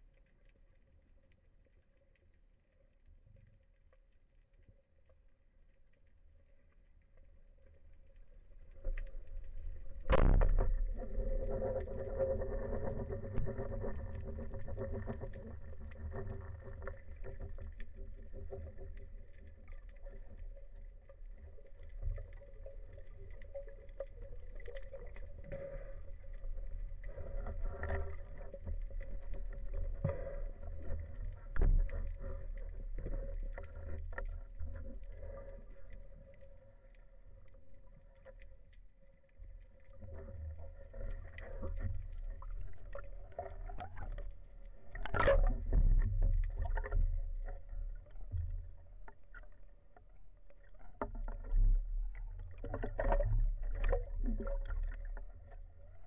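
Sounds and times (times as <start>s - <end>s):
speargun crack underwater: 10.0s - 11.0s.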